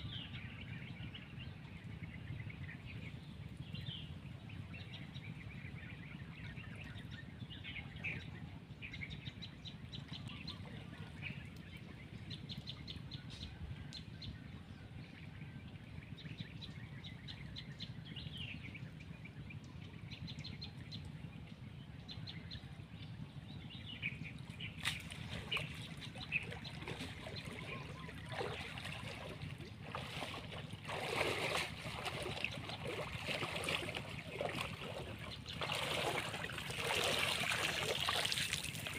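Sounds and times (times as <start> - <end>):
low steady rumble: 0.0 - 38.9
birds chirping: 23.6 - 38.9
water splashing and dripping: 24.8 - 38.9.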